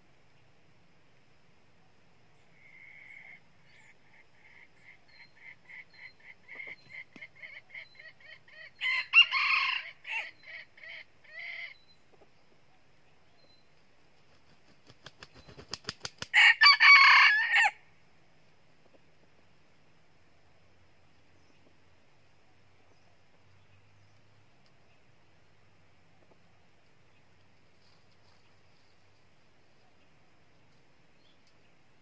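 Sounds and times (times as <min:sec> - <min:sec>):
rooster crowing: 0:08.8 - 0:10.4, 0:16.3 - 0:17.8
wingbeats: 0:14.2 - 0:16.3.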